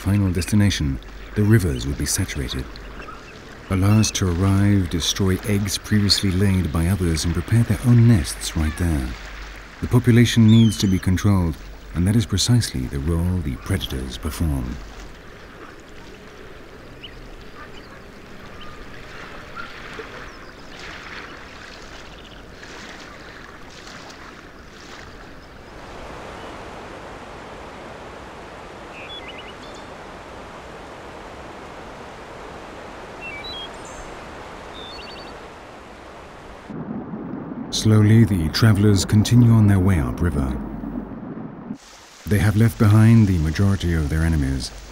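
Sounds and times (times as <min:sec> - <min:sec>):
rushing water: 0:00.0 - 0:44.9
high bird calls: 0:01.0 - 0:06.9, 0:10.2 - 0:11.9, 0:28.8 - 0:30.2, 0:33.1 - 0:35.6
waves washing on shore: 0:17.6 - 0:44.9.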